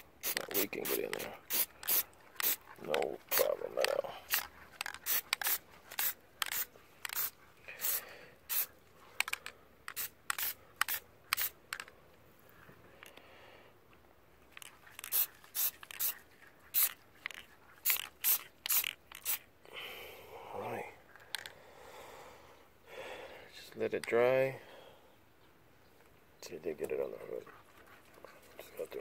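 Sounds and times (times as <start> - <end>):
aerosol can spraying: 0.0 - 2.6, 3.3 - 8.7, 9.9 - 11.6, 15.0 - 19.4.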